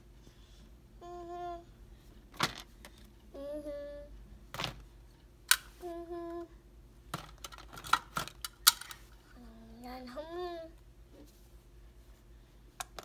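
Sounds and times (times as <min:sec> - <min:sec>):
child humming: 0:01.0 - 0:01.7, 0:03.3 - 0:04.2, 0:05.8 - 0:06.6.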